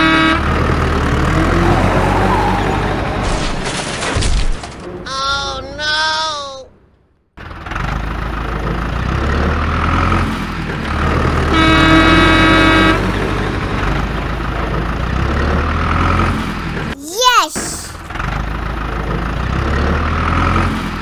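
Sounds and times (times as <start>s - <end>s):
horn honk: 0.0s - 1.2s, 11.5s - 13.3s
vehicle engine rumbling: 0.0s - 17.0s, 17.8s - 21.0s.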